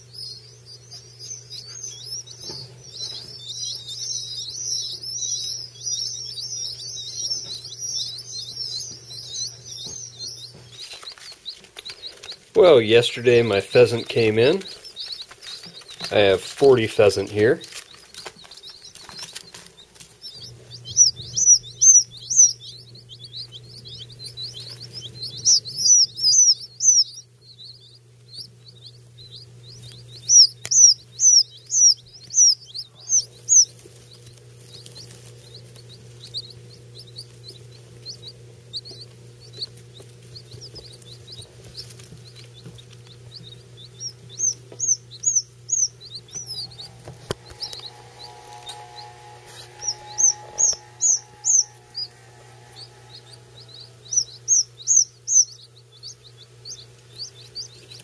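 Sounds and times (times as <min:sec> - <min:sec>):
chicks peeping: 0:00.0 - 0:58.0
steady low hum: 0:00.0 - 0:58.0.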